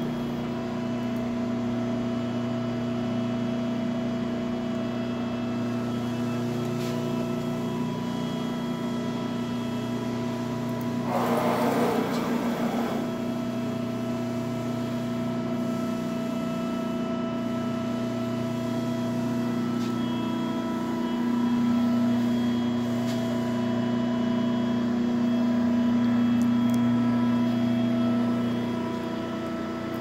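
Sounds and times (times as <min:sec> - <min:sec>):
hydraulic press motor humming: 0:06.3 - 0:14.3.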